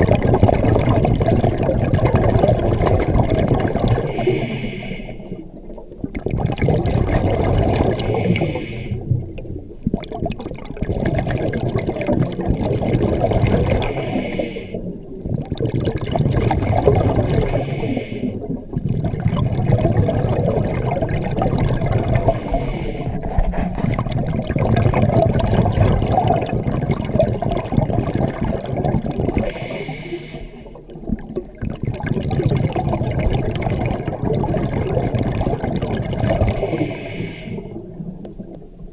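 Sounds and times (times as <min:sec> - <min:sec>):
exhaust bubbles rumbling underwater: 0:00.0 - 0:38.9
regulator inhale hiss: 0:04.1 - 0:05.4, 0:08.0 - 0:09.2, 0:13.8 - 0:14.9, 0:17.5 - 0:18.5, 0:22.2 - 0:23.5, 0:29.4 - 0:30.8, 0:36.5 - 0:37.8.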